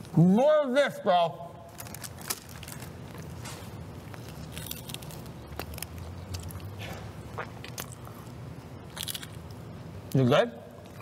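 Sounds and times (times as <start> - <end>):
low steady hum: 0.0 - 11.0
chewing food: 1.8 - 9.6.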